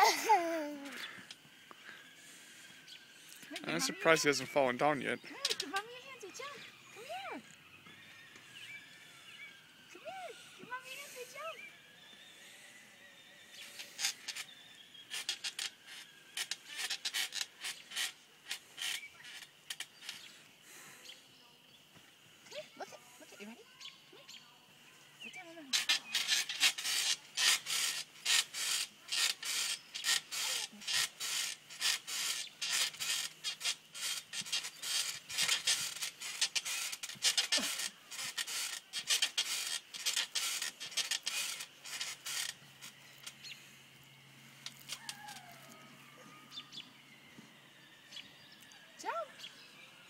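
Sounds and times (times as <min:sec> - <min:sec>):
faint bird chirps: 0:00.0 - 0:26.4
rasping and rubbing on safety net: 0:13.6 - 0:20.4, 0:25.7 - 0:43.6, 0:44.6 - 0:46.1.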